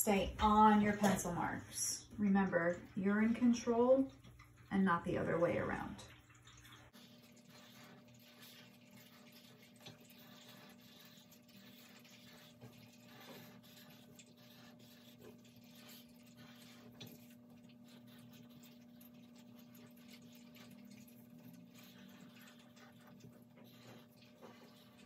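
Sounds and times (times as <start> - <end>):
marker scratching on paper: 7.5 - 17.3.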